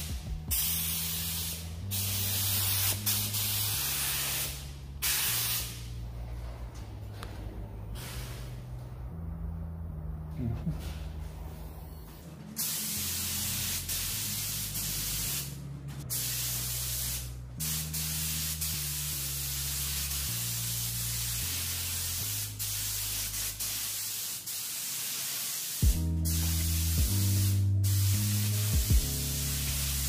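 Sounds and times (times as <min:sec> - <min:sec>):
spray gun hissing: 0:00.0 - 0:05.9, 0:12.6 - 0:30.0.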